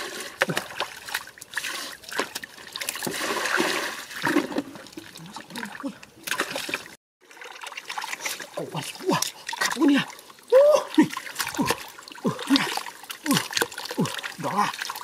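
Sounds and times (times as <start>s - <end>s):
water splashing from bucket: 0.0s - 15.0s.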